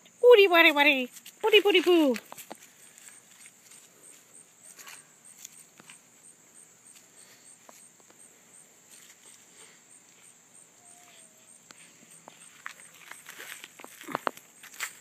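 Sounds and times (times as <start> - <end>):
insects chirping: 0.0 - 15.0
leaves rustling: 1.0 - 15.0.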